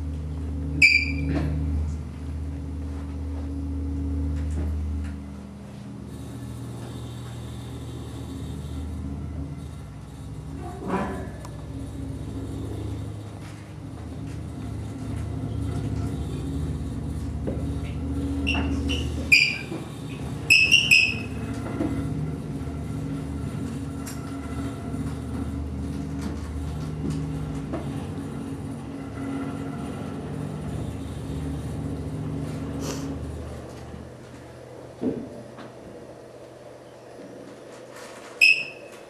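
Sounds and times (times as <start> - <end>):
low layered drone: 0.0 - 35.0
sharp high squeals: 0.8 - 1.3, 18.4 - 19.8, 20.4 - 21.5, 38.4 - 38.9.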